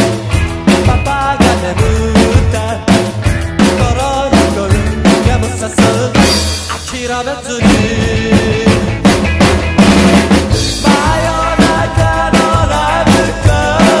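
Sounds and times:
drum kit beat: 0.0 - 14.0
recorded rock and roll song: 0.0 - 14.0.

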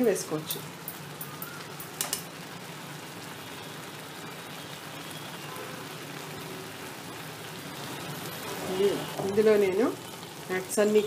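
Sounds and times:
milk mixture bubbling and sizzling: 0.0 - 11.0.

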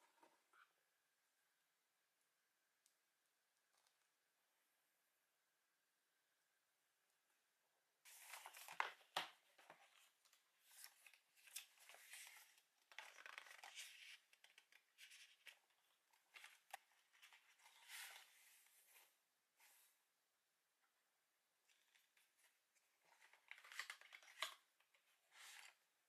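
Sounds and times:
paper pages rustling: 8.1 - 19.8, 21.7 - 25.8
cardboard box of pencils handled: 8.1 - 19.9, 21.7 - 25.9.

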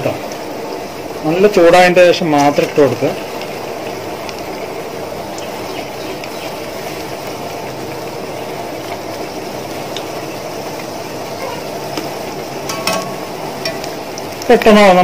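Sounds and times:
deep-frying bubbling sizzle: 0.0 - 15.0
skimmer tapping metal pan: 11.9 - 14.5.

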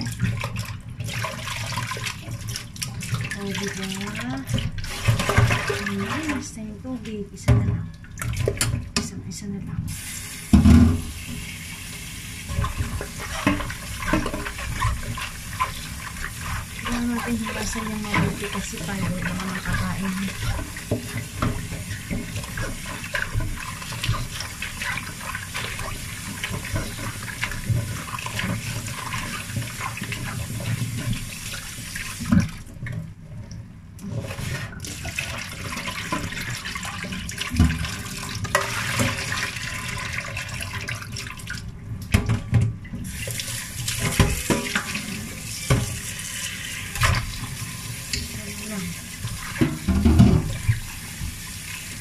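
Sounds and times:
tap water splashing into a pot: 0.0 - 6.4, 7.5 - 9.2, 10.0 - 33.1, 34.0 - 52.0
hands rubbing and rinsing mushrooms: 11.1 - 32.7.

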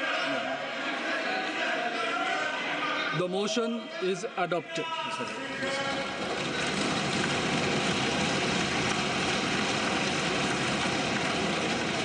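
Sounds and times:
crowd cheering: 0.0 - 3.2, 5.2 - 12.0
thumping on desks: 5.9 - 12.0.

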